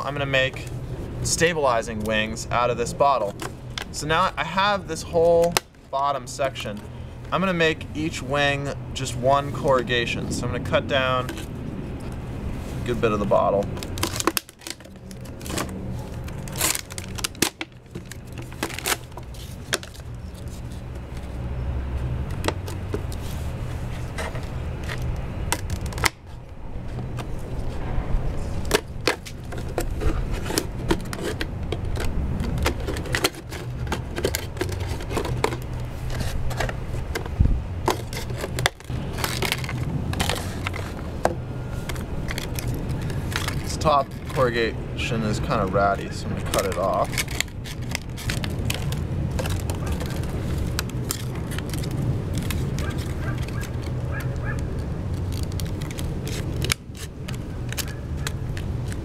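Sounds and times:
steady low rumble: 0:00.0 - 0:59.0
scissors snipping plastic: 0:46.4 - 0:59.0.

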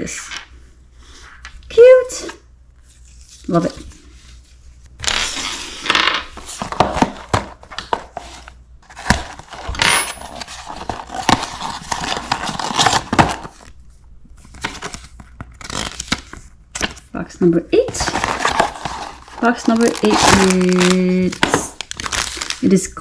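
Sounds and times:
cardboard box being torn open: 0:10.3 - 0:13.6, 0:18.0 - 0:22.6.

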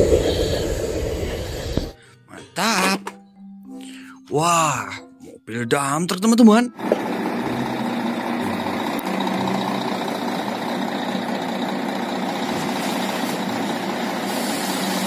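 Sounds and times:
heavy truck engine running: 0:06.8 - 0:15.0.

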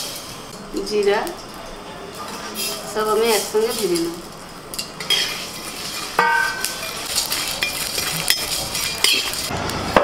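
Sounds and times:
metal spatula scraping in pan: 0:02.2 - 0:09.5
metal clang: 0:06.2 - 0:06.8.

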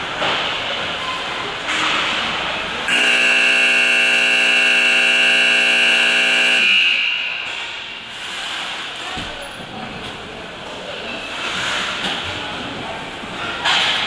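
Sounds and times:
ice rink horn blast: 0:02.9 - 0:07.6.

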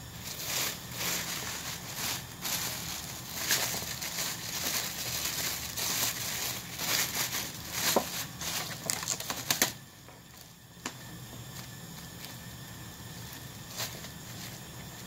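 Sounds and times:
plastic bags rustling: 0:00.0 - 0:10.6, 0:13.1 - 0:15.0.

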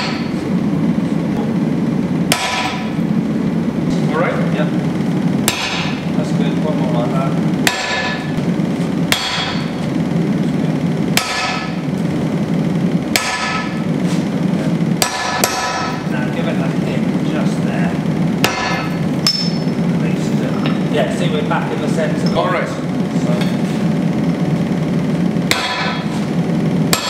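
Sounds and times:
sledgehammer striking metal: 0:00.0 - 0:00.4, 0:02.3 - 0:02.9, 0:05.4 - 0:06.1, 0:07.6 - 0:08.3, 0:09.1 - 0:09.8, 0:11.1 - 0:11.8, 0:13.1 - 0:13.8, 0:15.0 - 0:16.0, 0:18.4 - 0:19.7, 0:25.5 - 0:26.1
steady low hum: 0:00.0 - 0:27.0.

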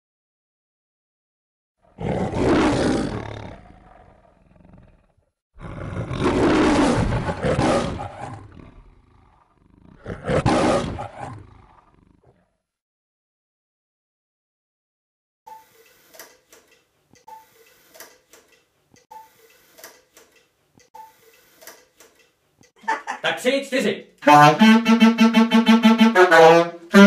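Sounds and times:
lion roaring: 0:01.8 - 0:12.6.

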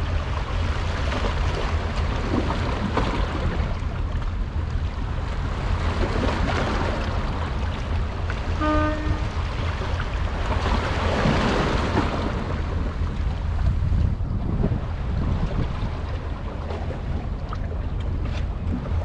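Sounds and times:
sea waves: 0:00.0 - 0:19.0
wind: 0:00.0 - 0:19.0
short pitched tone: 0:08.6 - 0:09.3
deep low rumble: 0:12.0 - 0:19.0.

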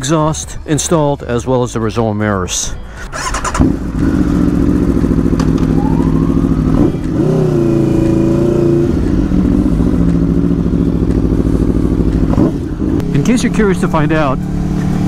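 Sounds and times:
motorcycle engine at low revs: 0:03.3 - 0:15.0.

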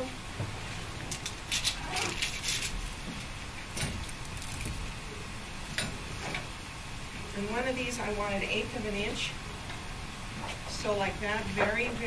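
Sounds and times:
onion skin crackling: 0:01.1 - 0:03.3, 0:04.0 - 0:05.0.

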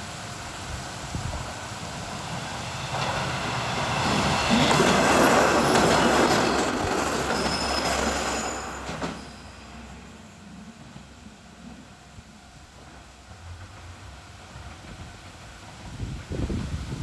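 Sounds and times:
diesel railcar passing: 0:00.0 - 0:17.0
high wheel squeal: 0:03.8 - 0:09.7.

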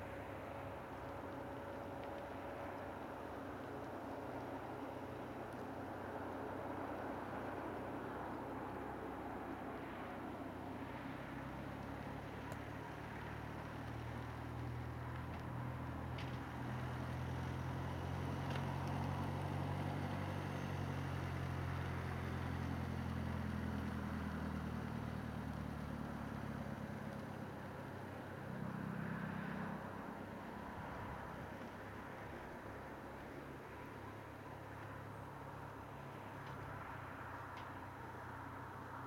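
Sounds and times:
car engine humming: 0:00.0 - 0:39.0.

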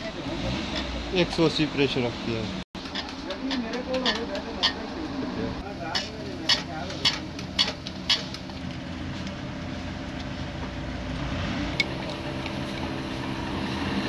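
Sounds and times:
sharp metallic clicks: 0:02.8 - 0:04.8.

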